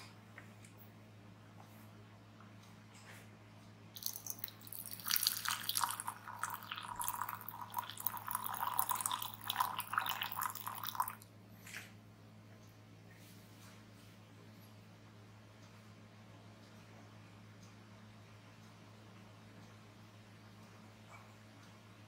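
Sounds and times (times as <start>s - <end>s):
water pouring into glass pitcher: 4.0s - 11.2s
water drip: 4.0s - 11.3s.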